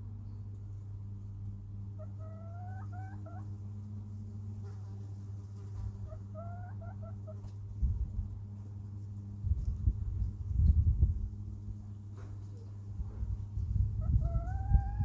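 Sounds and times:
steady low hum: 0.0 - 15.0
hens calling: 1.9 - 3.5, 6.0 - 7.6, 14.0 - 15.0.

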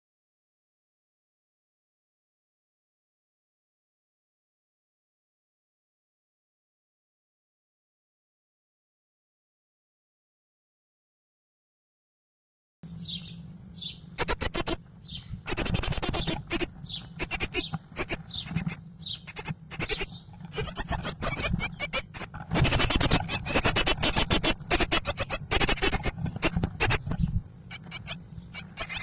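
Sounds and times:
nestlings begging chorus: 12.9 - 29.0.

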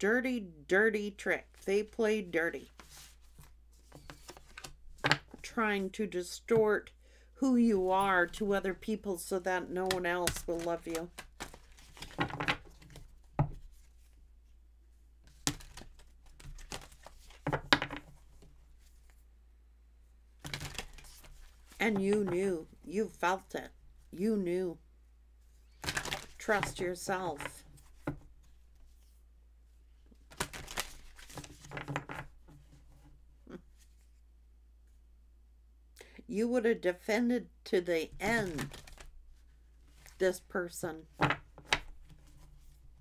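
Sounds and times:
cards shuffling: 2.6 - 5.4, 9.7 - 14.2, 15.3 - 19.2, 20.4 - 22.6, 25.7 - 29.1, 30.2 - 32.7, 38.2 - 39.2.

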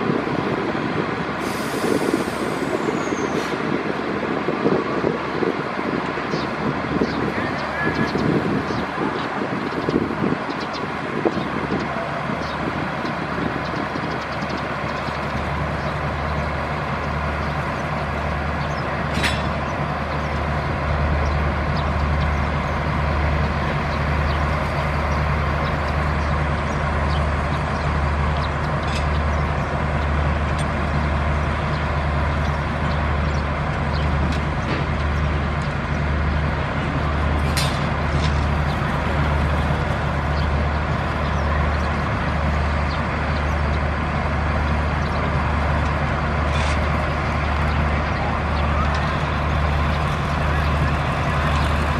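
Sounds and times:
locomotive diesel engine throbbing: 0.0 - 51.9.

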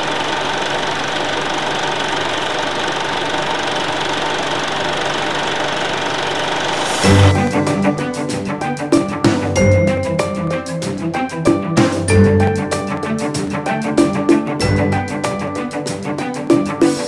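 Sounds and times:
film projector clattering: 0.0 - 6.9
music with mallet percussion: 6.9 - 17.0.

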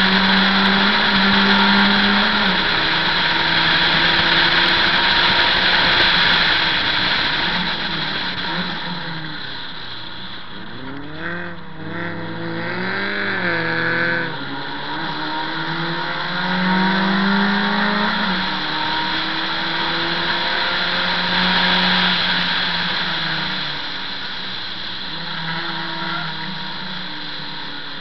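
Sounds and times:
race car engine revving: 0.0 - 28.0
wind and road noise: 0.0 - 28.0.

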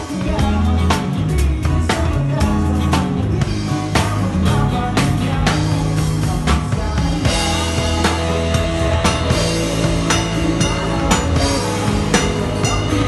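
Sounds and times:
bass and guitar: 0.0 - 13.0
drum kit beat: 0.0 - 13.0.

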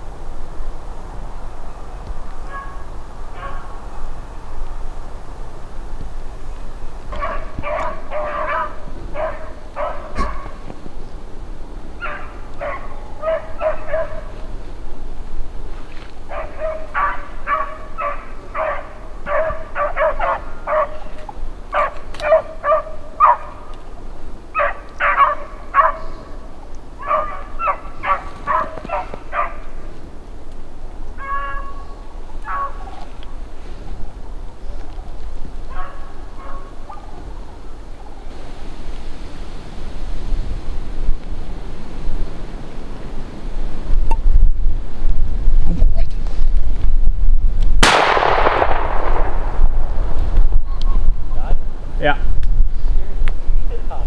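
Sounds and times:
beagles baying: 2.4 - 4.4, 7.1 - 10.8, 11.9 - 14.5, 16.2 - 23.9, 24.5 - 30.0, 31.0 - 34.7, 35.6 - 38.3.

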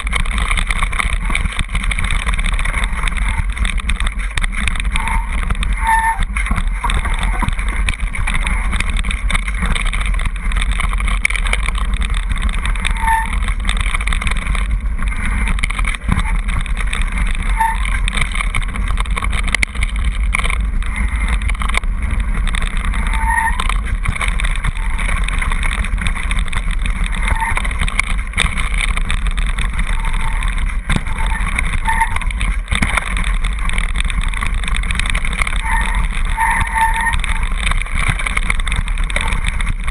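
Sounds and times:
bike frame rattling: 0.0 - 39.9
tyres rumbling over gravel: 0.0 - 39.9
brief squeaks: 5.0 - 6.3, 12.9 - 13.4, 17.5 - 18.0, 31.2 - 32.2, 35.6 - 37.2.

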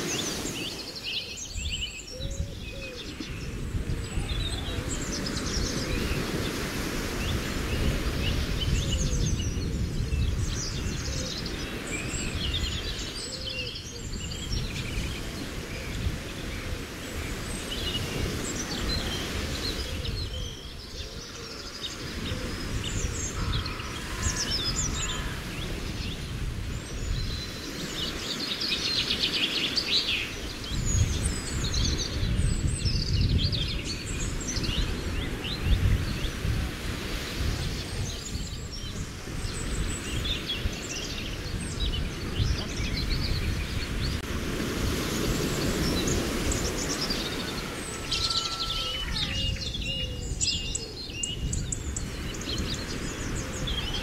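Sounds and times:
lake water washing: 0.0 - 1.6, 34.0 - 49.4
small birds chirping: 0.0 - 54.0.

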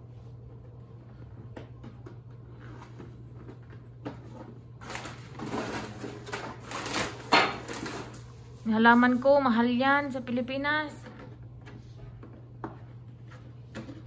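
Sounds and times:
low steady hum: 0.0 - 14.0
packaging rustling: 4.7 - 8.6.

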